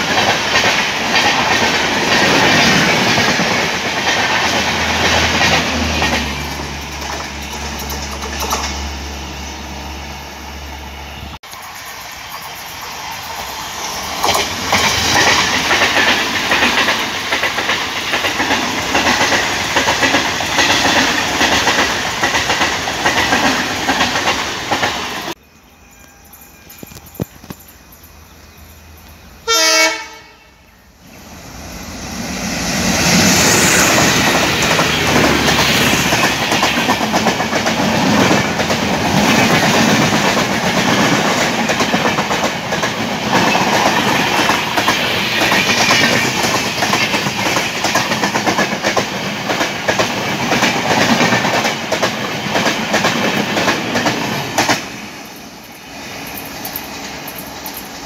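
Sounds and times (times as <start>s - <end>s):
train passing with wheel clatter: 0.0s - 58.0s
locomotive horn blast: 29.4s - 30.6s.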